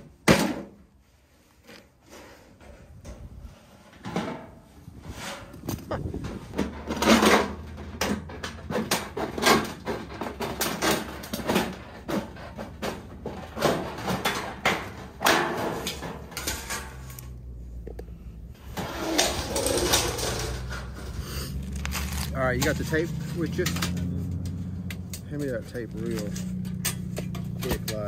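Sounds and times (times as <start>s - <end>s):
sheet metal crinkling: 2.3s - 17.4s, 18.6s - 28.0s.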